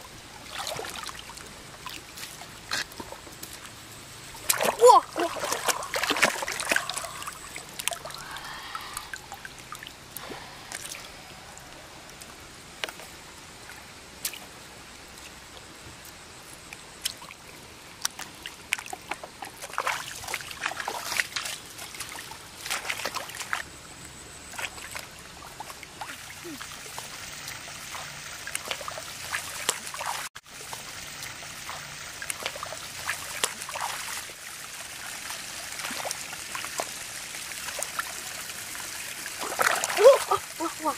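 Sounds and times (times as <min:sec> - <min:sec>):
water trickling: 0:00.0 - 0:16.1, 0:16.7 - 0:40.9
hands splashing in muddy water: 0:04.4 - 0:09.1, 0:39.3 - 0:40.9.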